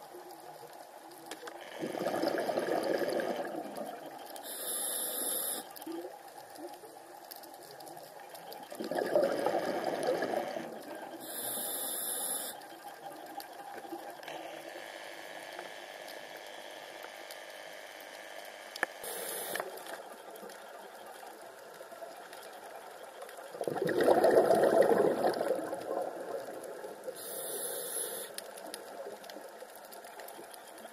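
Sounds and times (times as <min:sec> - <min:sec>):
faint steady hum: 0:00.0 - 0:30.9
exhaled bubbles rushing: 0:01.8 - 0:04.0, 0:08.7 - 0:10.8, 0:23.5 - 0:27.1
regulator inhalation hiss: 0:04.4 - 0:05.7, 0:11.2 - 0:12.6, 0:19.0 - 0:19.7, 0:27.2 - 0:28.4.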